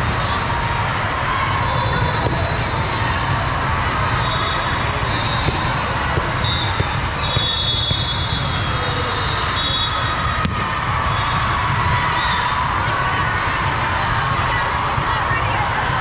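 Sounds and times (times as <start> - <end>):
balls bouncing and smacked: 2.0 - 2.6, 5.4 - 8.6, 10.3 - 10.9
shoe squeaks: 4.1 - 10.1.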